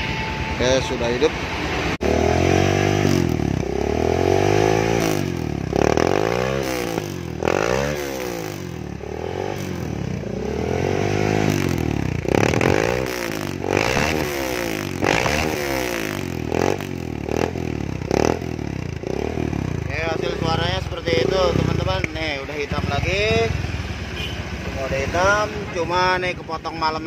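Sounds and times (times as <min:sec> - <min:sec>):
motorcycle engine revving: 0:00.0 - 0:27.0.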